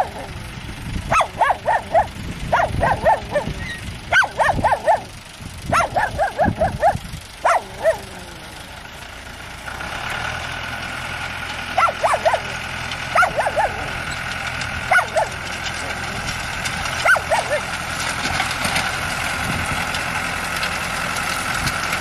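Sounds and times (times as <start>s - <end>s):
tractor engine hum: 0.0s - 22.0s
dog barking: 1.1s - 5.1s, 5.7s - 8.2s, 11.8s - 14.0s, 14.9s - 15.4s, 17.0s - 17.6s.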